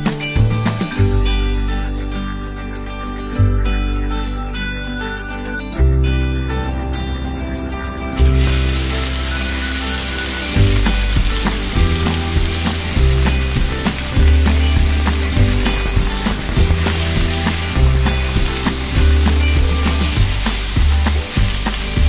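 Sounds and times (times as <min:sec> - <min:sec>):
fish sizzling in oil: 0:08.2 - 0:22.0.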